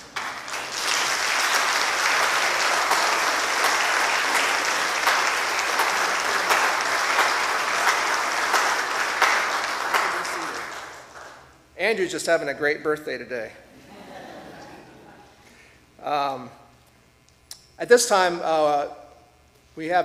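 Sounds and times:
crowd clapping: 0.0 - 11.5.

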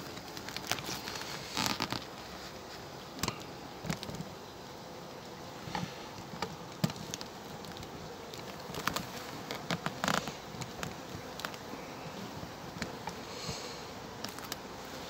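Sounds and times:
honeybees buzzing: 0.0 - 15.0
small clicks: 14.2 - 14.6.

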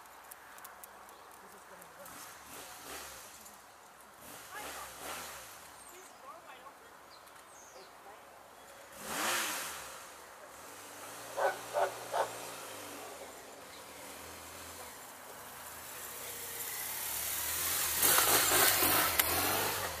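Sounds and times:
motorcycle engine passing by: 2.0 - 6.0, 8.8 - 20.0.

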